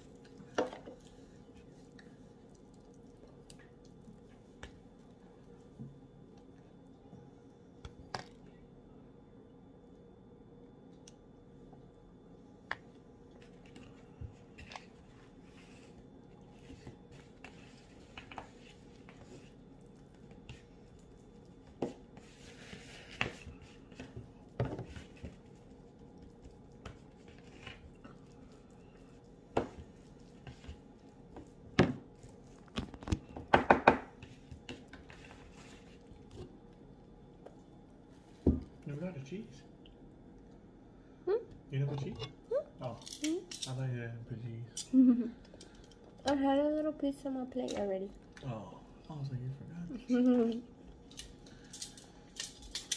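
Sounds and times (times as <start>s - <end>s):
tortilla rustling: 0.0s - 6.8s, 13.2s - 38.9s
faint steady hum: 0.0s - 52.9s.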